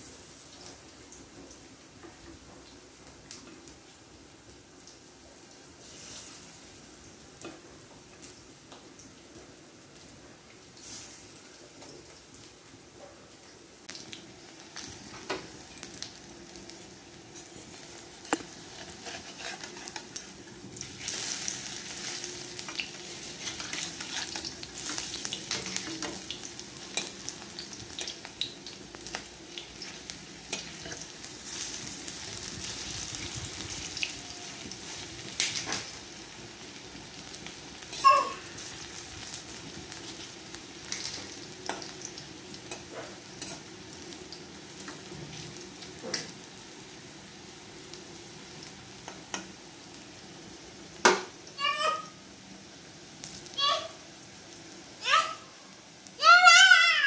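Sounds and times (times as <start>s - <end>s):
food sizzling in oil: 0.0s - 57.0s
metal spatula scraping pan: 18.2s - 20.2s, 23.2s - 26.1s.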